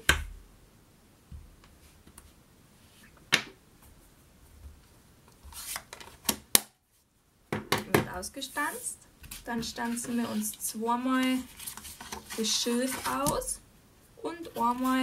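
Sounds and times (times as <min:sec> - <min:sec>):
handling noises on wooden table: 0:11.4 - 0:13.5.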